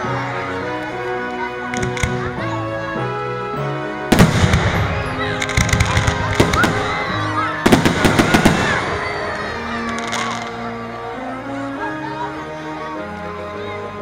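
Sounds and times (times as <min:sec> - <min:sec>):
music playing: 0:00.0 - 0:14.0
fireworks cracking: 0:01.7 - 0:02.4, 0:04.1 - 0:10.6.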